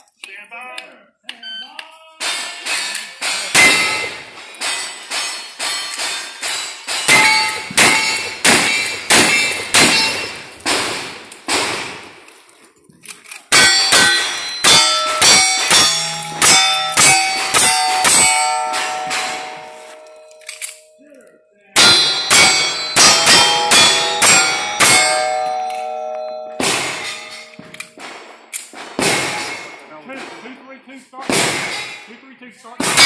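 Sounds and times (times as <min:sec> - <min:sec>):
gunshots: 0:02.2 - 0:12.2, 0:13.5 - 0:20.2, 0:26.6 - 0:30.6, 0:31.2 - 0:32.1, 0:32.8 - 0:33.0
steel target ringing: 0:02.4 - 0:11.4, 0:13.5 - 0:21.1, 0:21.8 - 0:29.8.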